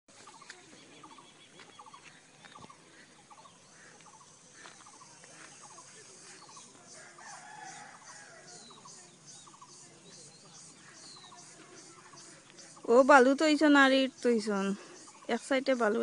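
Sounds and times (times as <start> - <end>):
small bird chirping: 0.2 - 16.0
rooster crowing: 7.0 - 8.7.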